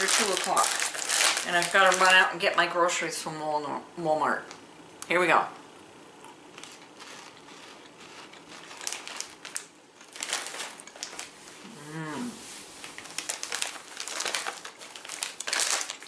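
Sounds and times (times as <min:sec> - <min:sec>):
person chewing crunchy snack: 0:06.2 - 0:11.2
person humming mmm: 0:11.6 - 0:12.5.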